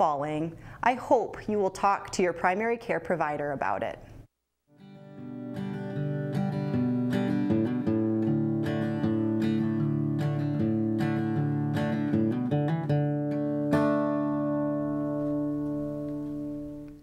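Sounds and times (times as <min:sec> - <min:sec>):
acoustic guitar picked notes: 0:04.7 - 0:17.0.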